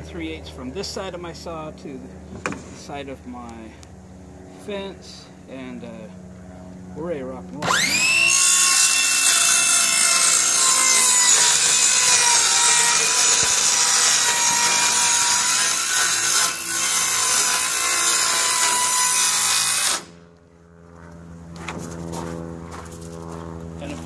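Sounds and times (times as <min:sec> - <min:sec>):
circular saw cutting plywood: 0:07.6 - 0:20.2.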